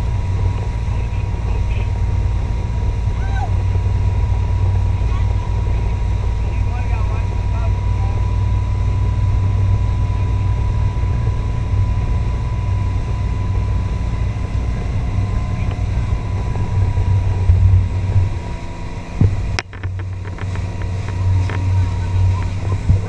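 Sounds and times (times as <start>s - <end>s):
motorboat engine running: 0.0s - 23.0s
rush of wake and wind: 0.0s - 23.0s.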